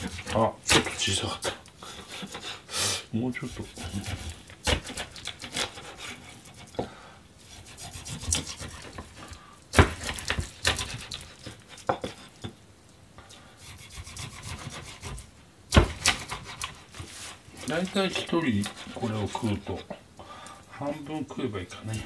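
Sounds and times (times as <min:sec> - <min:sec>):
knife sawing through fish: 0:03.4 - 0:06.7, 0:07.4 - 0:09.0, 0:10.0 - 0:12.2, 0:13.6 - 0:15.3, 0:15.9 - 0:19.8.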